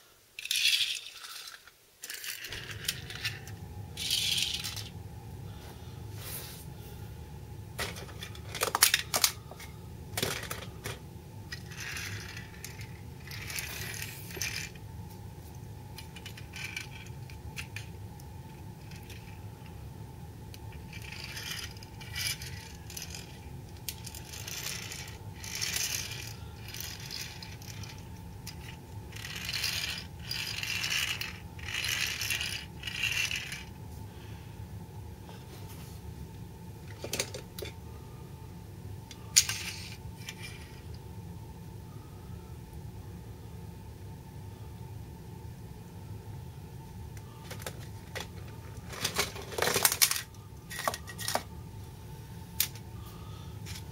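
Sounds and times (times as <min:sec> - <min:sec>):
steady low hum: 0:00.0 - 0:53.9
toy truck wheels scraping floor: 0:00.4 - 0:04.9, 0:07.8 - 0:14.8, 0:20.8 - 0:33.7
toy clicking on floor: 0:20.9 - 0:33.7.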